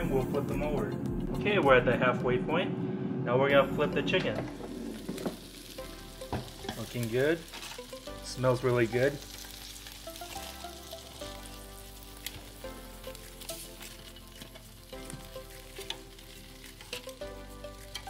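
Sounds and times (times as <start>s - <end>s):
chicken sizzling in air fryer: 4.6s - 18.0s.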